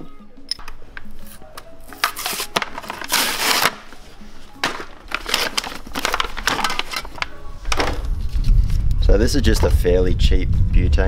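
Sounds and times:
plastic packaging crackling: 0:01.9 - 0:08.6.

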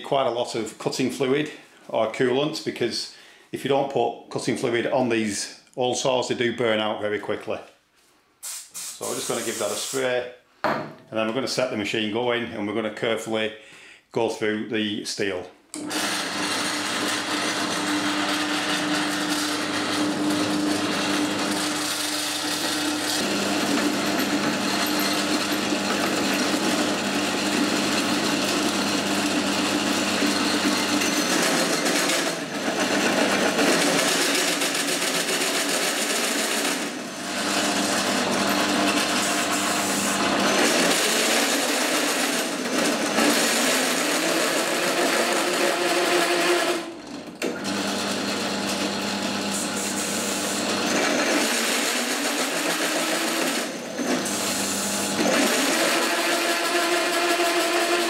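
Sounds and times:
hole saw cutting steel: 0:15.8 - 0:46.9, 0:49.5 - 0:58.0
drill motor hum: 0:15.8 - 0:58.0.

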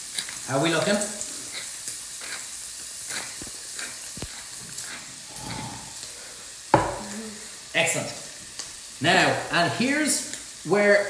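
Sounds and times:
pepper mill grinding: 0:00.0 - 0:06.0
bacon sizzling in a pan: 0:00.0 - 0:11.0.

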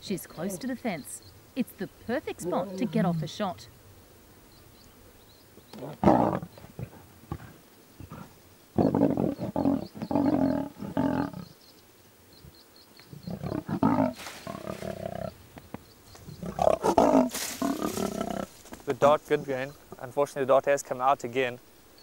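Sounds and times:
lioness growling and snarling: 0:05.8 - 0:11.5, 0:13.2 - 0:15.4, 0:16.3 - 0:18.6
lioness hissing: 0:05.8 - 0:11.5, 0:16.4 - 0:18.6.

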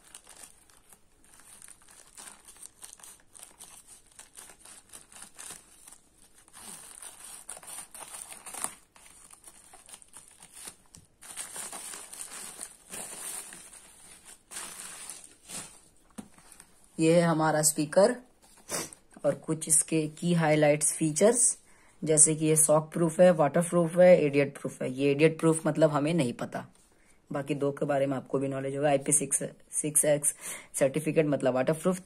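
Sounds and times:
plastic mailer bag crinkling: 0:00.0 - 0:16.8.

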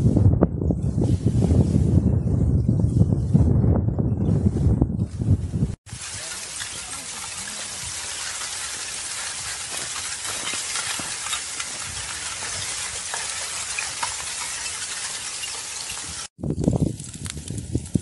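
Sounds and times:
lava crackling and hissing: 0:05.9 - 0:18.0.

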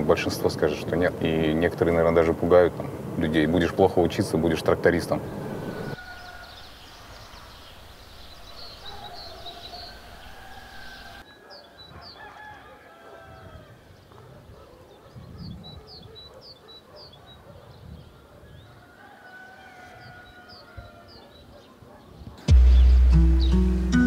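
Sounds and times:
small birds chirping: 0:04.4 - 0:19.0, 0:19.6 - 0:24.0
rooster crowing: 0:05.2 - 0:06.8, 0:09.2 - 0:13.9, 0:18.7 - 0:21.3.

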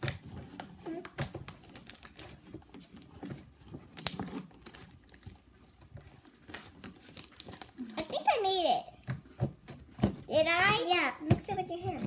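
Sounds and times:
chopstick stirring sticky slime: 0:00.0 - 0:12.0.

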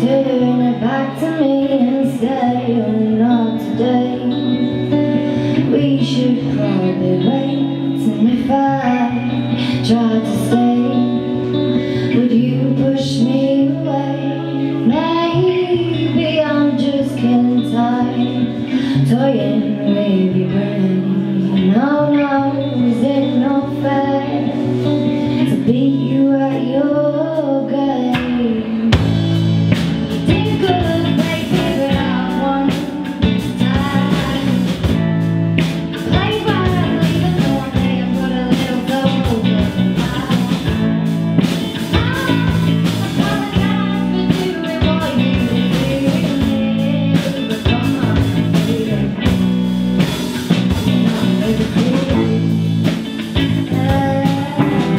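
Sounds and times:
bass and electric guitars: 0:00.0 - 0:54.9
woman singing: 0:00.0 - 0:54.9
drum kit and cymbals: 0:28.1 - 0:54.9.

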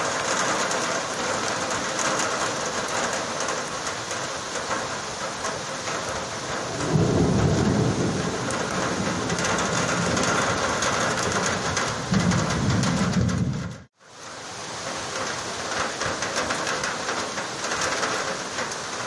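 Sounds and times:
heavy rain pouring: 0:00.0 - 0:19.0
thunder rumbling: 0:06.1 - 0:13.9.

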